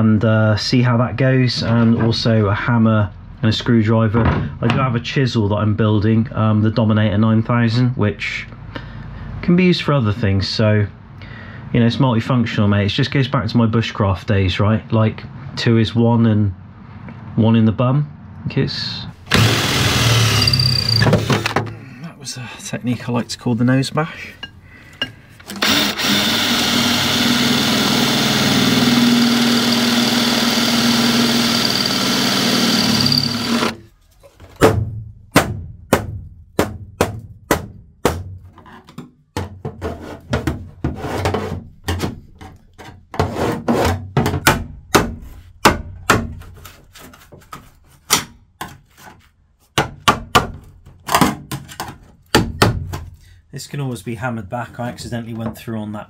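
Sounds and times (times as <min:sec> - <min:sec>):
cordless drill into steel: 0:19.2 - 0:21.6, 0:25.4 - 0:33.8.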